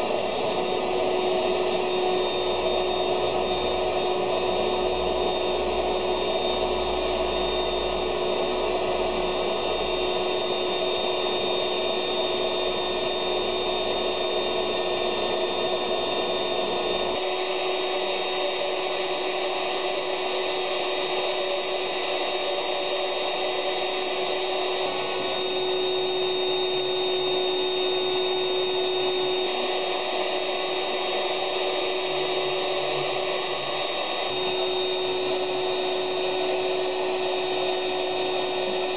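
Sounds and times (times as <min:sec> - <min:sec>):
vacuum cleaner motor whining: 0:00.0 - 0:38.9.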